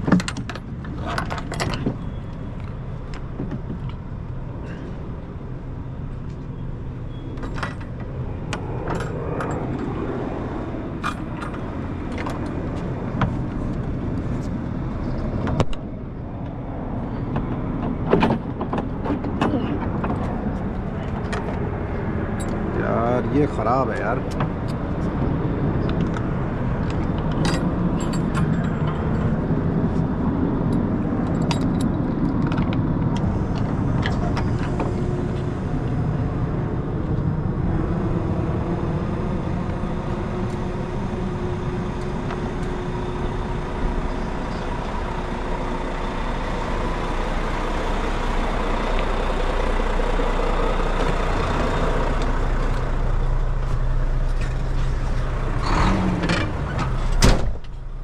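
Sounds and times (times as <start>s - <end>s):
diesel truck engine idling: 32.8s - 58.0s.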